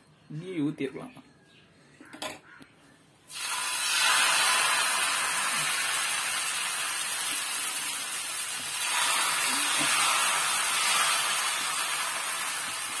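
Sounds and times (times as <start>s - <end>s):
batter sizzling on a hot pan: 3.3s - 13.0s.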